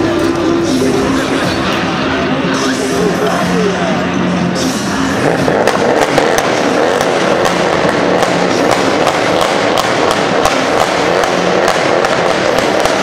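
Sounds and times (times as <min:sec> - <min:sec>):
car engine running: 0:00.0 - 0:13.0
exhaust pops and crackles: 0:05.2 - 0:13.0.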